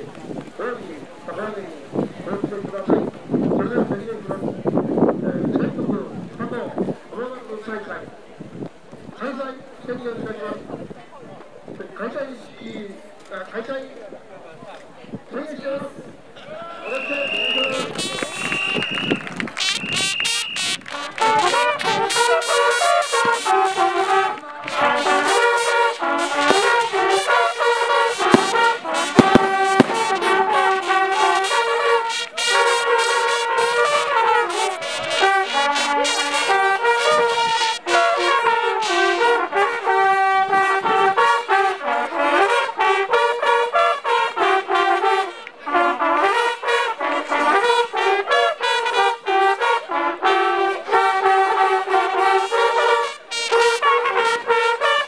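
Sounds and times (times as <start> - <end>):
brass band music: 17.6 - 18.6, 19.4 - 55.0.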